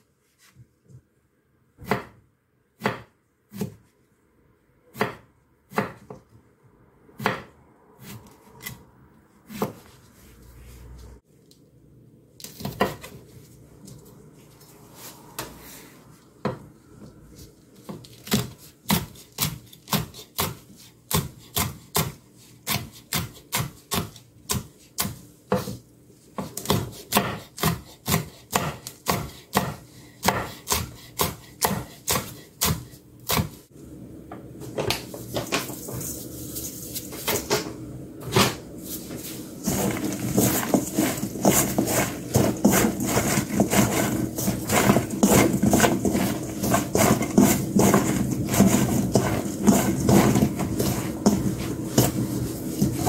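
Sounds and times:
knife chopping on wooden board: 0:01.8 - 0:02.2, 0:02.8 - 0:03.8, 0:04.9 - 0:06.2, 0:07.2 - 0:08.8, 0:09.5 - 0:09.8, 0:17.9 - 0:25.8, 0:26.4 - 0:33.6, 0:39.6 - 0:52.2
vegetables tossed in metal bowl: 0:39.6 - 0:53.0.

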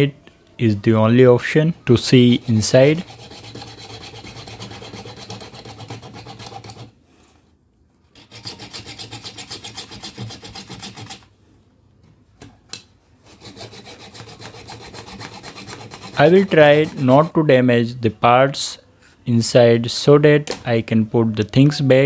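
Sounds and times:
hand hacksaw cutting plastic: 0:02.5 - 0:07.0, 0:08.2 - 0:11.3, 0:13.3 - 0:17.3.

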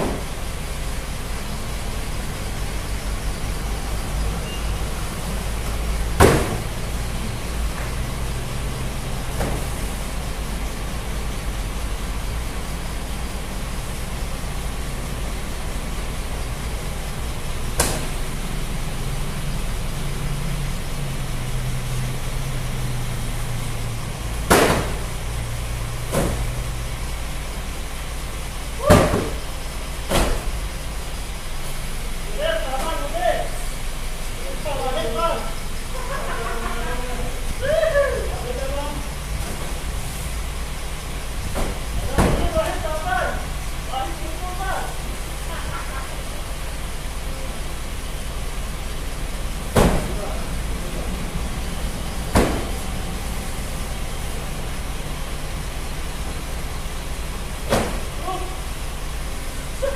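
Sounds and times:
cartons set down with thuds: 0:00.0 - 0:00.3, 0:06.2 - 0:06.8, 0:09.3 - 0:09.8, 0:24.5 - 0:25.1, 0:26.0 - 0:26.6, 0:28.8 - 0:29.4, 0:30.1 - 0:30.6, 0:41.4 - 0:42.8, 0:49.7 - 0:50.2, 0:52.3 - 0:52.8, 0:57.6 - 0:58.2
low engine hum: 0:00.0 - 0:59.9
steady low rumble: 0:33.4 - 0:59.9.

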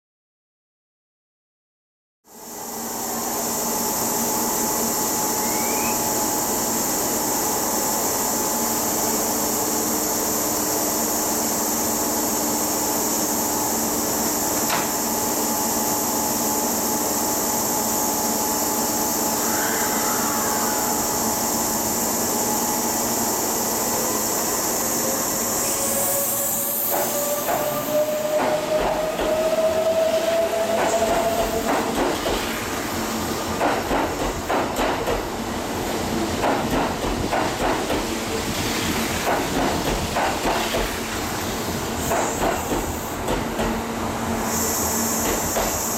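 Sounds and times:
train equipment hum and hiss: 0:02.3 - 0:45.9
train motor whine rising: 0:02.5 - 0:11.2, 0:12.5 - 0:32.8
short air hiss: 0:44.3 - 0:45.9.

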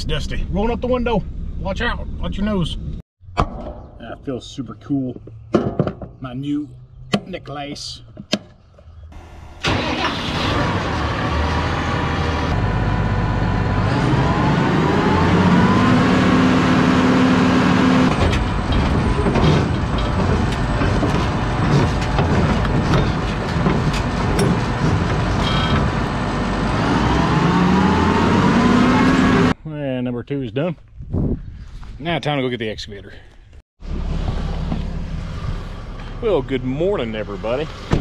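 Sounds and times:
truck engine accelerating: 0:09.2 - 0:29.6, 0:33.8 - 0:38.0
rattling and clattering: 0:18.1 - 0:26.4.

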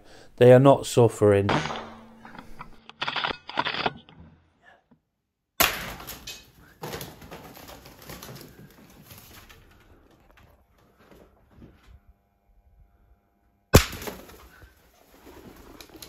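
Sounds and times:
pigeon wings flapping: 0:06.8 - 0:09.7, 0:14.1 - 0:16.0.

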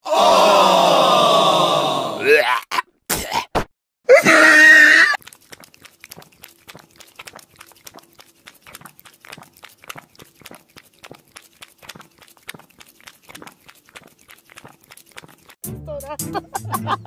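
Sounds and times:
cat lapping water: 0:05.2 - 0:15.6.

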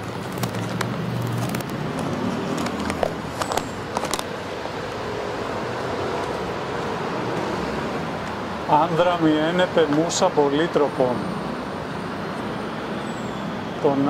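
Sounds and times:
paper crinkling and crackling: 0:00.0 - 0:04.3
city traffic noise: 0:00.0 - 0:14.0.

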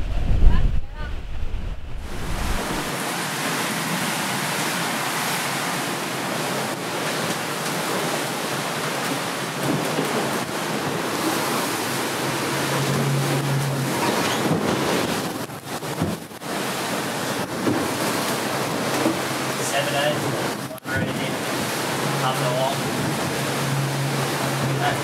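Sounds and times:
brief low hum: 0:00.0 - 0:02.9
rush of wind and water: 0:00.0 - 0:25.0.

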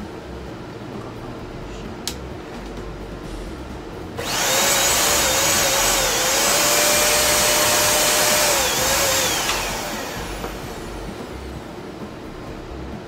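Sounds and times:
vacuum cleaner running: 0:04.2 - 0:11.4.

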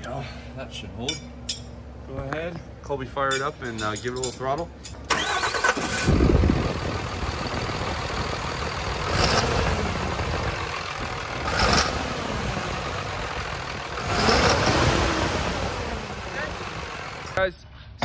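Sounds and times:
diesel engine idling: 0:05.1 - 0:17.4
engine throttle blips: 0:05.1 - 0:17.4.

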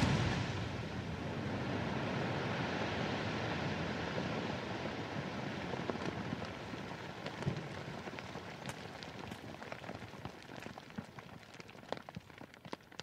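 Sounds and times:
hiss of settling debris: 0:00.0 - 0:03.5
small ticks of falling debris: 0:06.4 - 0:13.0.

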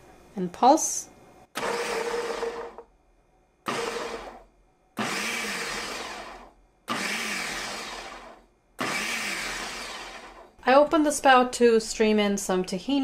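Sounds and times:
blender pulsing: 0:01.6 - 0:02.8, 0:03.7 - 0:04.4, 0:05.0 - 0:10.4.

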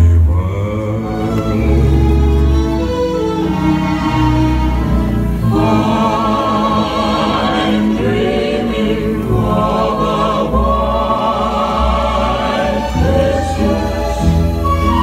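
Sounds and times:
voices singing long wavering notes: 0:00.0 - 0:15.0
instrumental accompaniment: 0:01.0 - 0:15.0.

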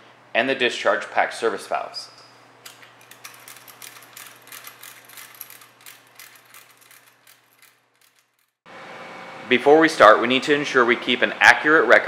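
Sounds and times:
ratchet wrench clicking: 0:02.7 - 0:08.6.

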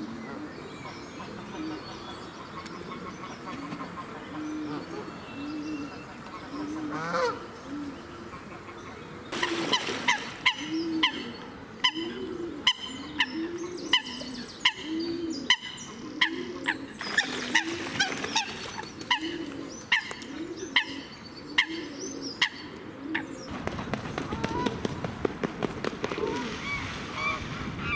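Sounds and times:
pigeon cooing: 0:09.4 - 0:23.5, 0:26.0 - 0:26.8.

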